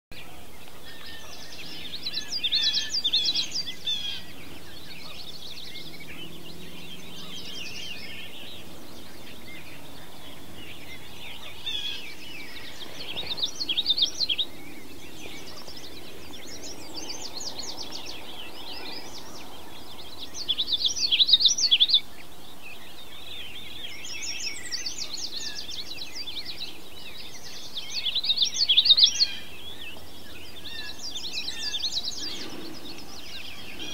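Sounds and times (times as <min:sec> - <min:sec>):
fainter bird songs: 0:00.1 - 0:33.9
songbirds singing: 0:00.1 - 0:33.9
steady outdoor hiss: 0:00.1 - 0:33.9.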